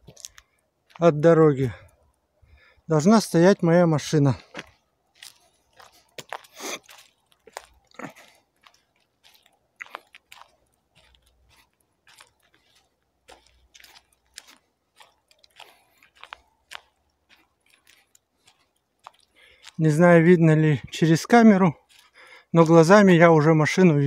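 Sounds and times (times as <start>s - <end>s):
footsteps on dirt track: 0.0s - 24.0s.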